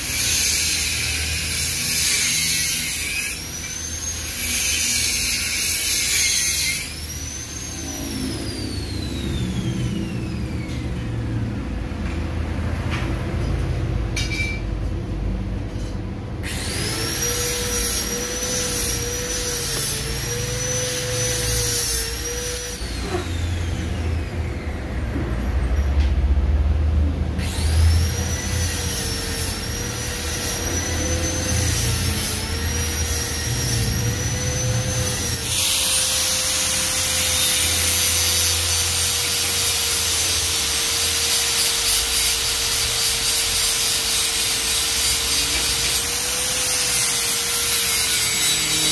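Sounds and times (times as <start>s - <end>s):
angle grinder grinding steel: 0.0s - 11.1s, 15.8s - 24.3s, 27.4s - 48.9s.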